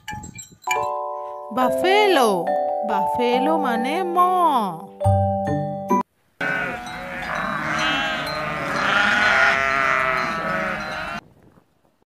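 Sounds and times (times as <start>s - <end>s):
sheep bleating: 6.4s - 11.2s.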